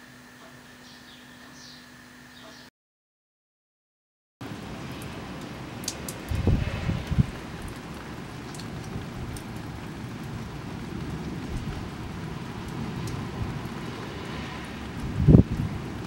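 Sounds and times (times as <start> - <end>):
steady rain hiss: 4.4 - 16.0.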